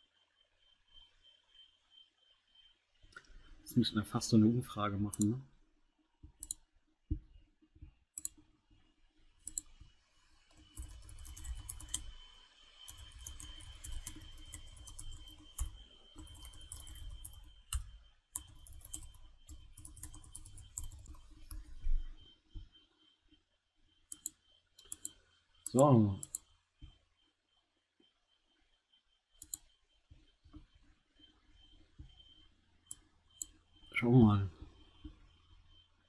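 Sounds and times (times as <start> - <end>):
mouse clicks: 6.4 - 6.6, 8.2 - 8.4, 9.4 - 9.7, 24.1 - 26.5, 29.4 - 29.7
typing on a keyboard: 9.4 - 9.7, 10.5 - 12.2, 12.9 - 21.8, 24.1 - 26.4, 29.4 - 29.6.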